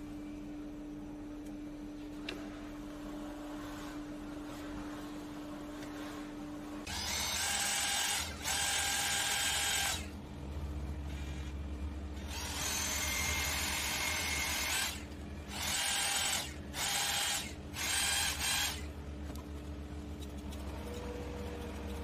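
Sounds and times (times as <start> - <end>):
steady low hum: 0.0 - 22.0
drill grinding metal: 6.9 - 10.1, 12.2 - 18.9.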